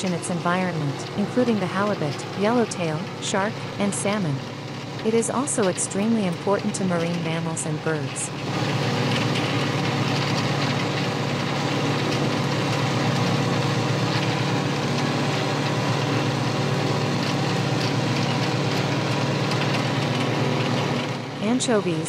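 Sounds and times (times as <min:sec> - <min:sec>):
boat engine humming: 0:00.0 - 0:22.0.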